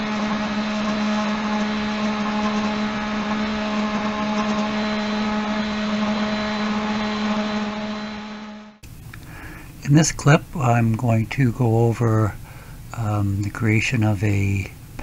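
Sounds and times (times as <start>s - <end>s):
milling machine motor hum: 0.0s - 8.9s
end mill cutting wood hiss: 0.0s - 11.1s.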